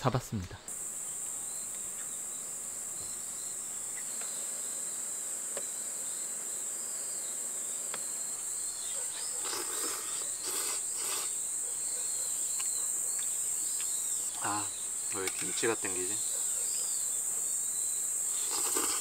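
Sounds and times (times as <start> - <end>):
insects chirring: 0.0 - 19.0
slurping and chewing: 9.4 - 11.4, 18.4 - 19.0.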